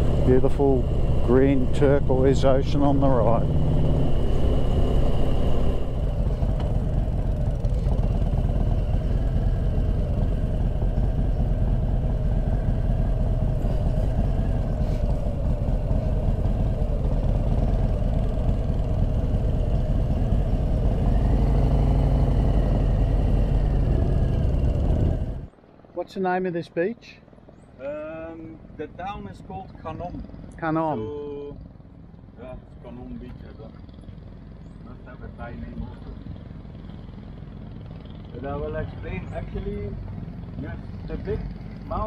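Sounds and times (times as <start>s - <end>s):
motorcycle engine running: 0.0s - 25.6s, 27.5s - 42.0s
wind rumble on microphone: 0.0s - 25.6s.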